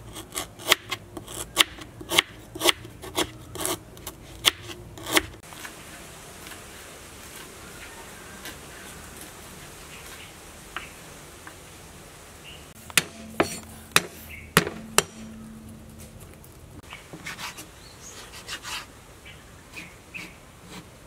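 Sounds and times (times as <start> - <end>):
knife chopping on wooden board: 12.9 - 15.4.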